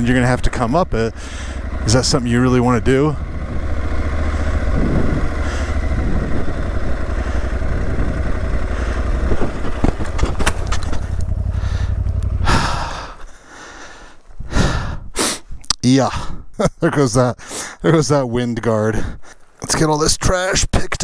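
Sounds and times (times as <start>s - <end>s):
motorcycle engine at low revs: 0.0s - 15.1s
motorcycle falling over: 9.2s - 13.2s.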